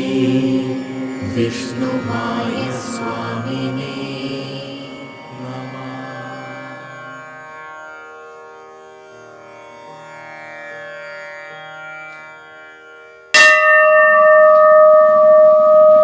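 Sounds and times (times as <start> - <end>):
bell strike ringing: 13.4 - 16.0.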